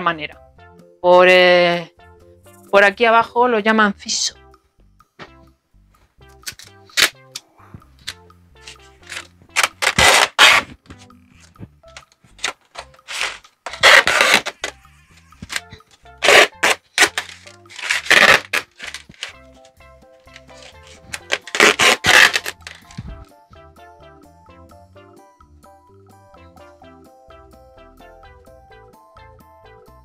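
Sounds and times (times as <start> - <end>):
quiet background music: 0.0 - 30.0
masking tape ripping: 6.4 - 7.4, 8.0 - 11.5, 12.3 - 19.4, 20.3 - 23.0
paper crinkling: 8.0 - 14.8, 15.4 - 19.4, 20.3 - 23.1.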